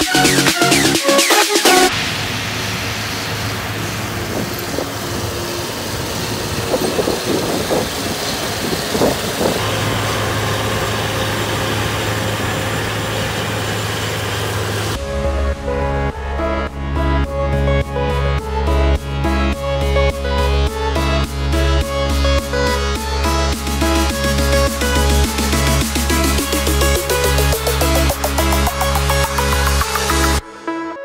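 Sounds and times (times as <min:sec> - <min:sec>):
music: 0:00.0 - 0:02.0, 0:15.0 - 0:31.0
rushing machine noise: 0:00.0 - 0:17.7, 0:20.7 - 0:30.4
combine harvester engine hum: 0:01.9 - 0:20.0, 0:20.7 - 0:30.4.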